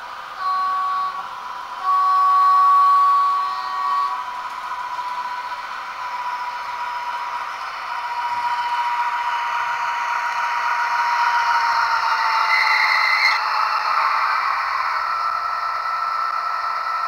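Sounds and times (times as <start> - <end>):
model locomotive running sound: 0.0 - 17.0
steady whine: 0.0 - 17.0
model train horn blasts: 0.2 - 7.1.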